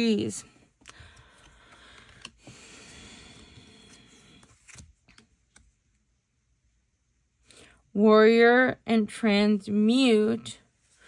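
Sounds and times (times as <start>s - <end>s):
cards sliding rustle: 0.8s - 5.7s.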